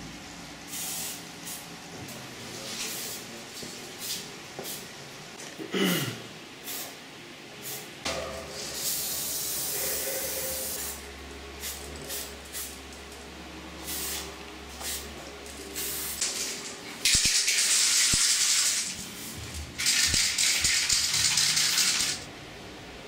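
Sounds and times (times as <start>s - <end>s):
spray paint can hissing: 0.7s - 1.6s, 13.8s - 15.1s, 15.8s - 22.3s.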